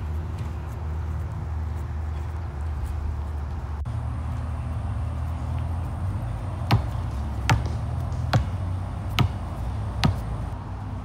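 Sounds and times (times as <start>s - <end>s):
basketball bouncing on concrete: 6.5s - 10.5s.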